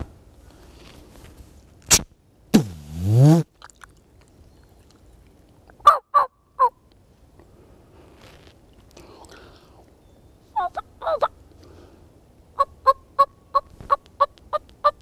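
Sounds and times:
turkey calls: 5.8s - 6.8s, 10.6s - 11.4s.

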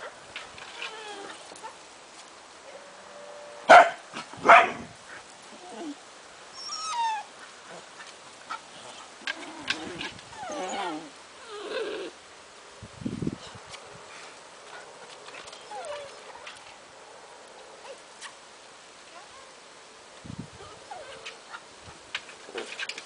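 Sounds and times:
dog whining yelps: 6.6s - 7.3s.

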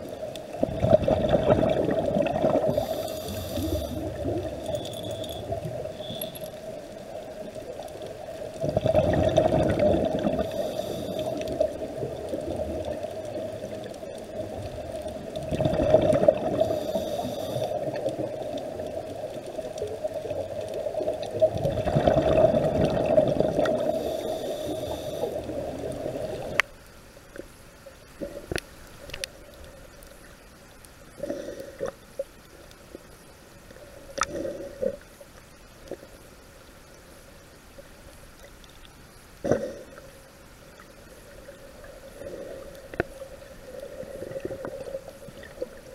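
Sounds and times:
exhaled bubbles surging: 0.0s - 4.8s, 8.5s - 10.7s, 11.5s - 16.9s, 20.0s - 26.6s
small underwater clicks: 0.0s - 45.9s
steady underwater hum: 0.0s - 45.9s
diver breathing through regulator: 2.6s - 6.5s, 10.4s - 11.6s, 16.5s - 17.9s, 23.7s - 25.6s.

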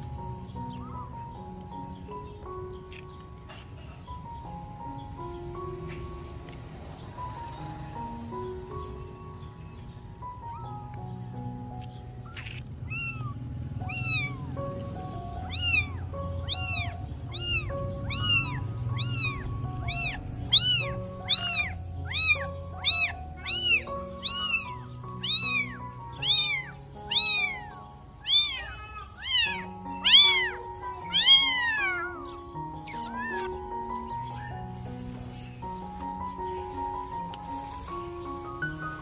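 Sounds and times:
kitten meowing: 12.2s - 34.6s.

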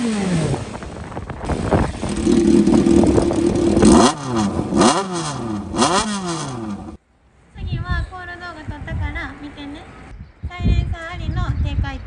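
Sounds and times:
motorcycle engine revving: 0.0s - 7.0s.

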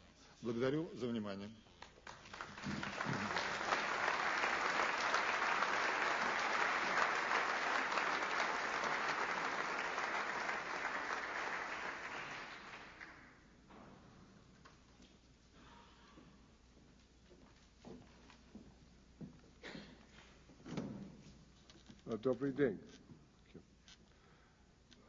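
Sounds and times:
audience applauding: 2.0s - 13.4s.

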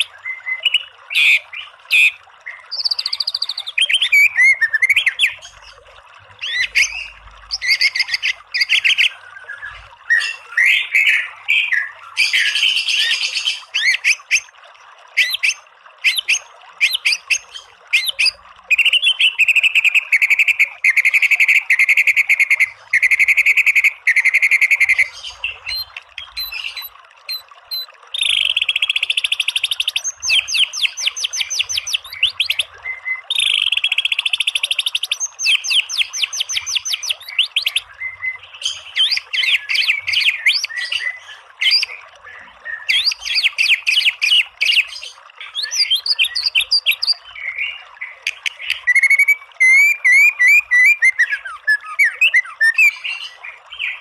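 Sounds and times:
bird whistled song: 0.2s - 5.4s, 18.0s - 42.0s, 42.7s - 54.0s.

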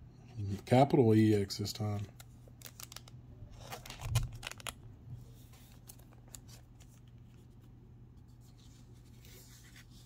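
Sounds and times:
low steady hum: 0.0s - 10.0s
cards clicking and rustling: 1.9s - 4.8s, 5.5s - 7.6s.

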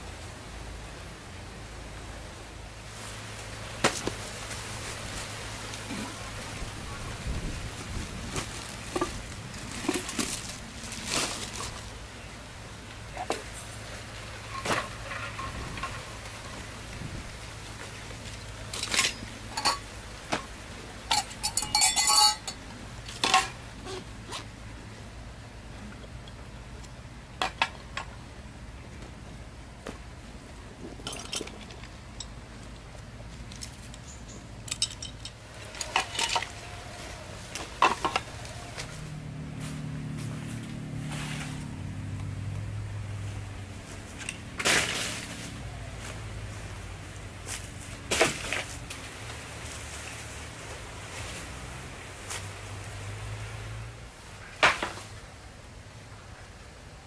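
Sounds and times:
low steady hum: 0.0s - 57.0s
gear knocking on leaves: 3.7s - 6.2s, 7.3s - 12.0s
metallic clinks: 21.1s - 22.6s, 34.6s - 36.4s
branch crashing onto ground: 44.6s - 45.6s.

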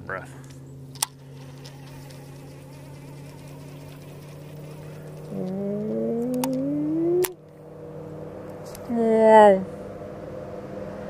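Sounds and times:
boat engine humming: 0.0s - 10.2s
motor revving up: 1.1s - 7.4s.

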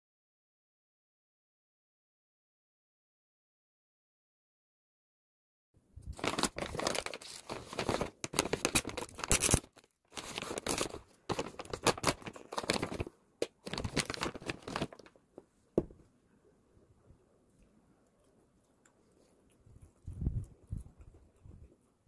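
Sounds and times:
plastic pouch crinkling and rustling: 6.0s - 15.2s.

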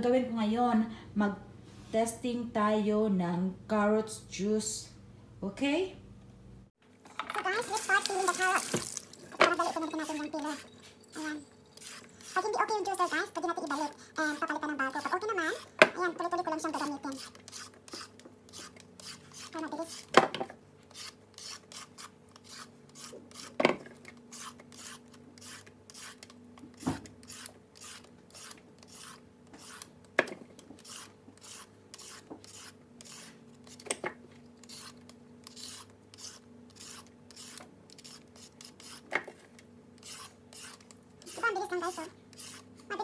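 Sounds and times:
vegetable peeler scraping carrot: 7.5s - 20.2s, 20.8s - 30.0s, 30.6s - 33.9s, 34.6s - 39.1s, 40.0s - 43.0s.

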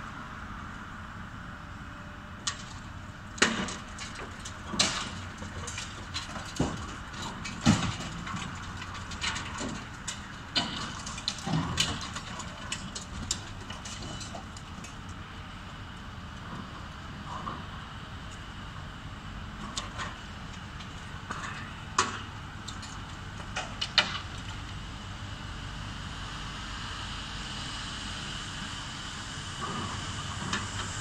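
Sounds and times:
concrete cracking and thudding: 3.4s - 14.9s
debris falling: 3.4s - 15.0s.

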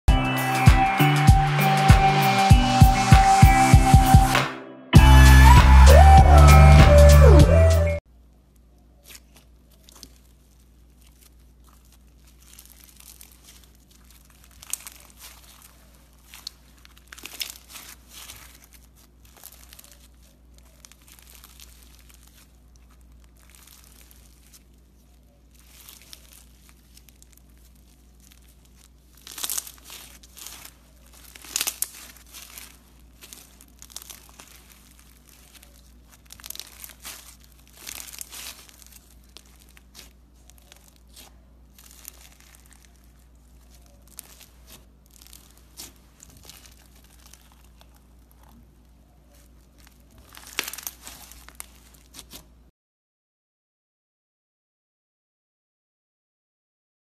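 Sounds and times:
slime squishing and crackling: 8.1s - 52.7s.

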